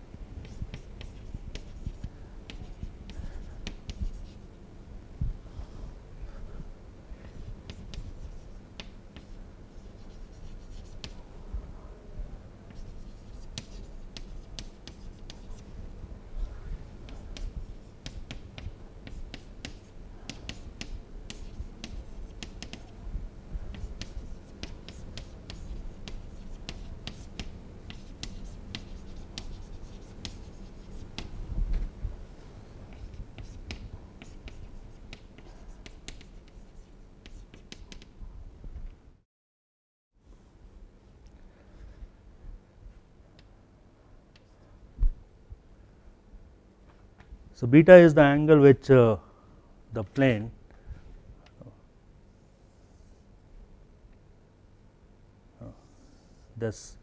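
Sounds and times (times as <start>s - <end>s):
chalk scratching on chalkboard: 0.4s - 4.4s, 7.3s - 11.2s, 12.7s - 15.8s, 16.4s - 23.0s, 23.6s - 31.5s, 32.4s - 38.1s.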